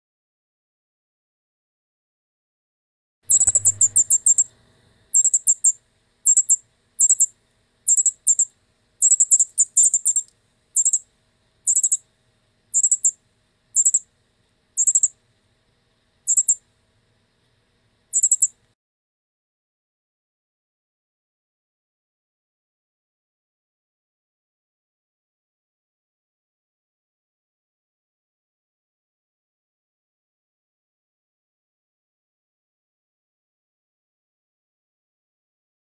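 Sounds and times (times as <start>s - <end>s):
bird chirping rapidly: 3.3s - 4.5s, 5.1s - 7.3s, 7.9s - 11.0s, 11.7s - 12.0s, 12.8s - 13.2s, 13.8s - 14.1s, 14.8s - 15.2s, 16.3s - 16.6s, 18.1s - 18.6s.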